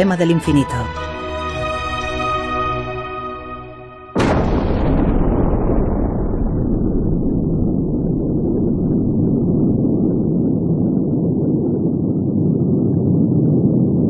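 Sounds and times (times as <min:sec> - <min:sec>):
explosion rumble: 0:04.1 - 0:14.0.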